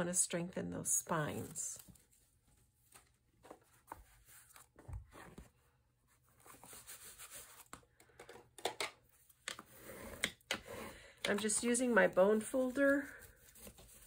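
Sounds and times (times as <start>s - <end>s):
bone folder scraping canvas: 9.5s - 14.0s.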